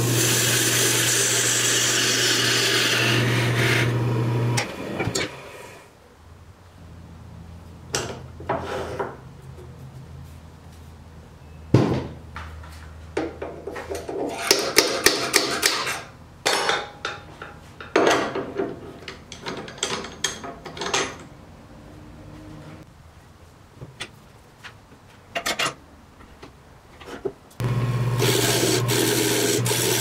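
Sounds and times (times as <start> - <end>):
metal parts clinking and clattering: 15.8 - 21.3.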